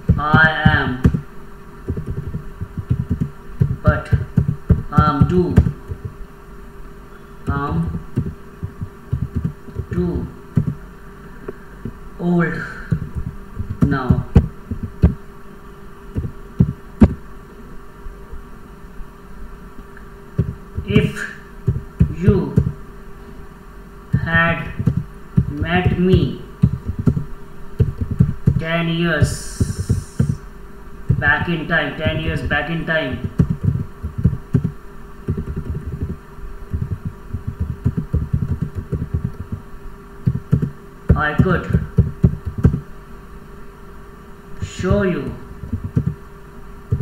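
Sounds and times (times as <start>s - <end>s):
faint steady hum: 0.0s - 47.0s
keyboard keystrokes: 35.3s - 39.5s, 45.7s - 46.2s.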